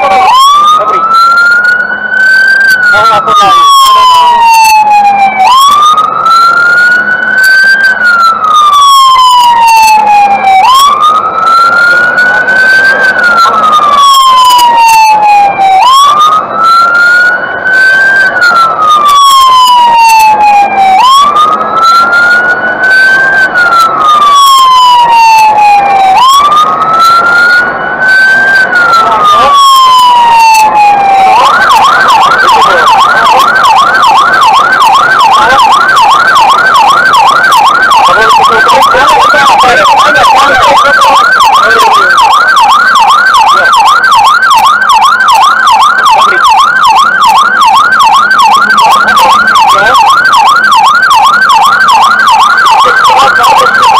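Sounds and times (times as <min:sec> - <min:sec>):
fire engine siren: 0:00.0 - 0:53.9.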